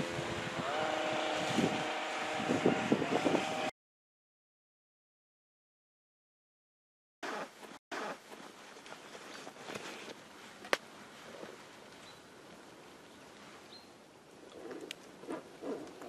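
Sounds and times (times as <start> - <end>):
soft rustling and handling noise: 8.2 - 13.7.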